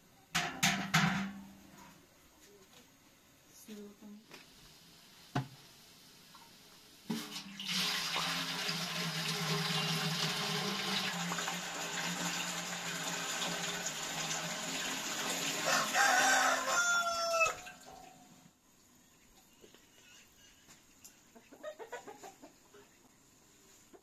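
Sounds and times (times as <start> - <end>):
water pouring into metal pot: 7.1 - 16.2
rooster crowing: 15.5 - 18.1.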